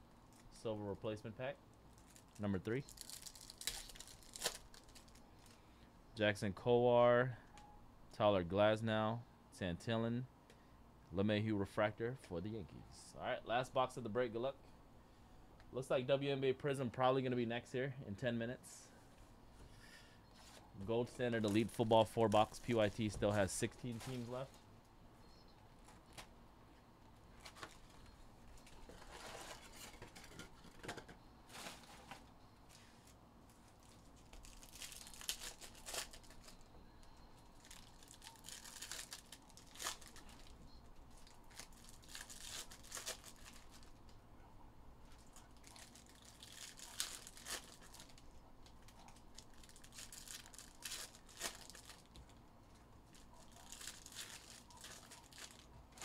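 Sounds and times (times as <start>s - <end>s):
foil wrappers tearing and crinkling: 2.0s - 5.6s, 33.7s - 36.6s, 37.6s - 44.0s, 45.2s - 52.2s, 53.0s - 56.0s.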